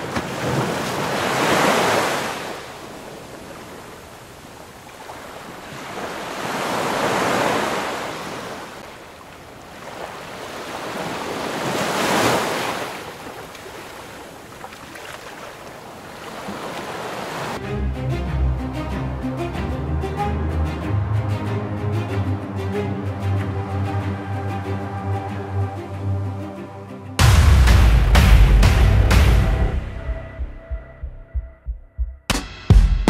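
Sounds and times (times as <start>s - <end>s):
ocean surf crashing on rocks: 0.0s - 9.0s, 9.6s - 17.6s.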